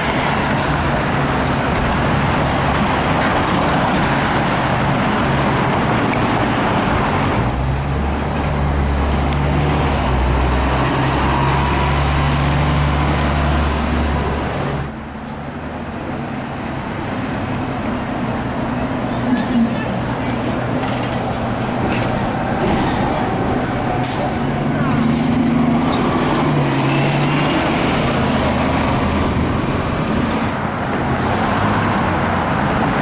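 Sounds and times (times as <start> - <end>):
bus engine drone: 0.0 - 33.0
car traffic passing: 0.0 - 33.0.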